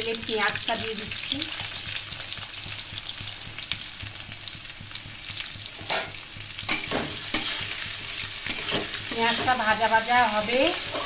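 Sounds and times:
onions sizzling in oil: 0.0 - 11.0
spatula scraping a metal pan: 5.8 - 9.8, 10.4 - 11.0.

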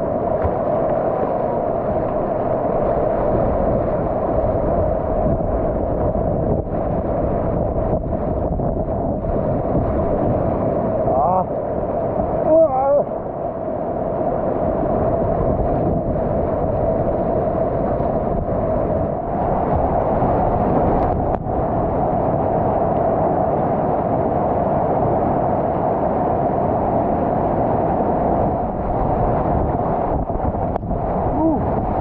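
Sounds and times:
paddle splashes: 0.0 - 4.6
whitewater rapids rushing: 16.2 - 32.0.

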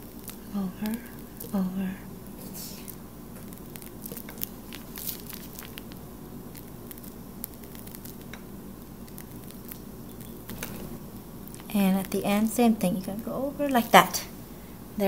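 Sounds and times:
piping bag squishing: 0.0 - 14.5
low steady hum: 0.0 - 15.0
crackles and clicks from bag: 2.8 - 6.0.

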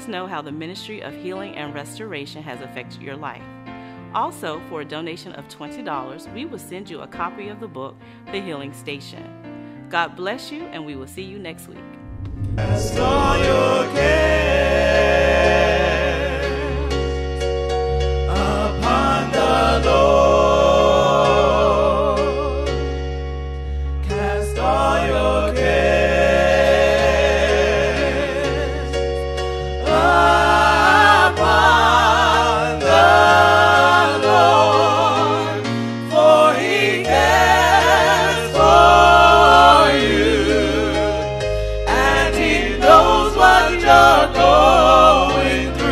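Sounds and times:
steady bass notes: 12.0 - 15.2
choir singing gospel: 12.1 - 17.5, 18.1 - 23.0, 24.0 - 45.9.

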